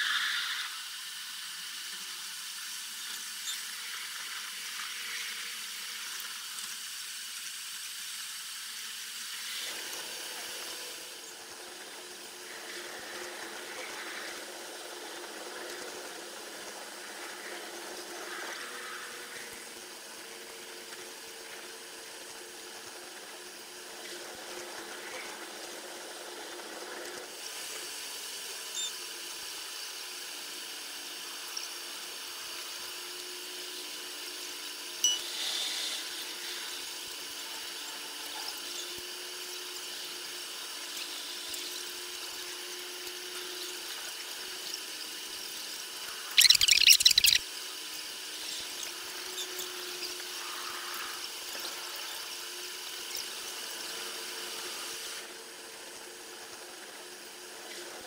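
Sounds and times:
sped-up train running noise: 0:00.0 - 0:58.0.

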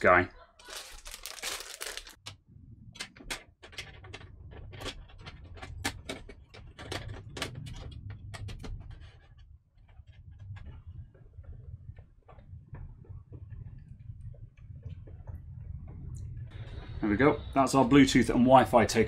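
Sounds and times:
low steady hum: 0:00.8 - 0:19.0.

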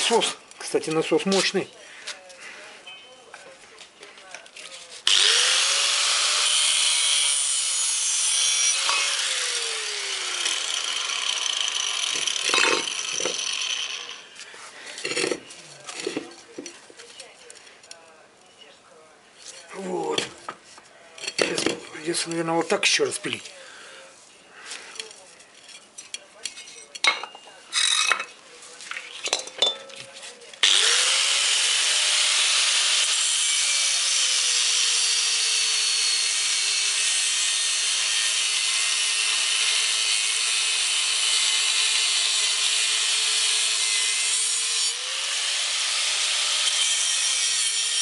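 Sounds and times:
angle grinder cutting steel: 0:05.0 - 0:14.4, 0:30.6 - 0:48.0.

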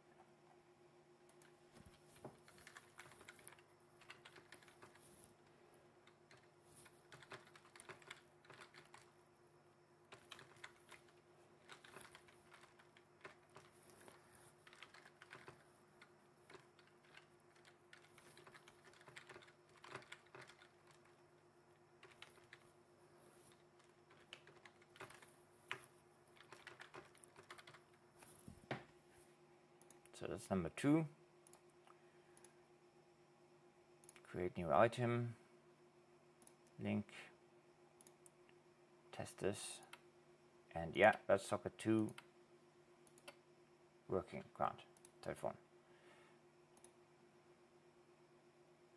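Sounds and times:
keyboard typing: 0:01.3 - 0:05.4, 0:06.0 - 0:09.2, 0:10.1 - 0:21.2, 0:22.0 - 0:22.7, 0:23.4 - 0:28.0, 0:42.0 - 0:43.4.

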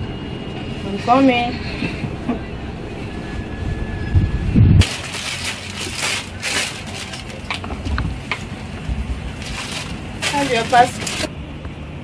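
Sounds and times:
material crinkling: 0:04.8 - 0:08.6, 0:09.3 - 0:11.3.

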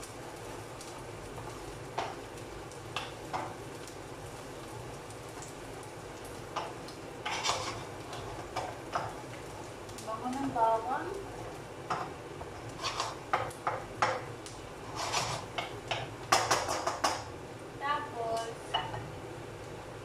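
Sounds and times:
garlic and onion sizzling in oil: 0:00.0 - 0:20.0
wooden spoon scraping pan: 0:07.2 - 0:09.3, 0:12.0 - 0:14.2, 0:14.8 - 0:16.7.

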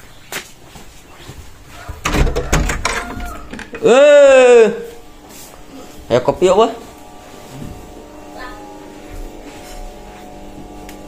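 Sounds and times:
background music with held tones: 0:03.7 - 0:11.0.

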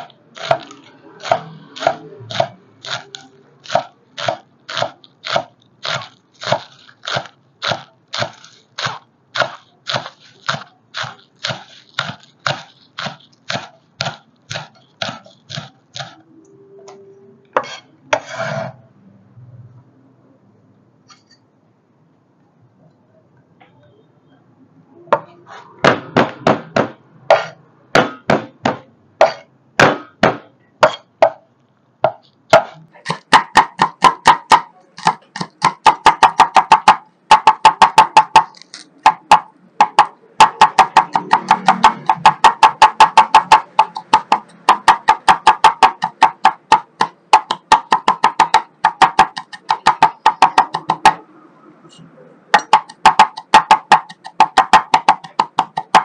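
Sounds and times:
cleaver chopping on wooden board: 0:00.0 - 0:16.2, 0:25.8 - 0:31.4, 0:32.0 - 0:51.2, 0:52.6 - 0:56.0.

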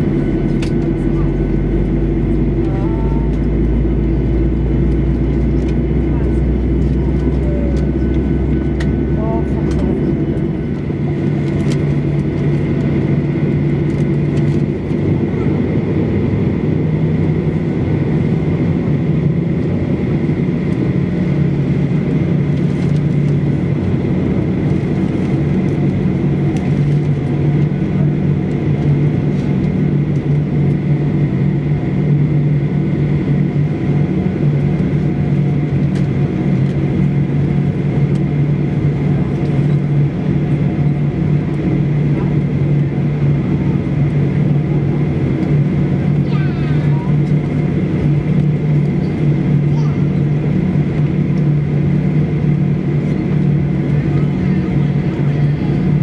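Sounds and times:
jet engines idling: 0:00.0 - 0:56.0.

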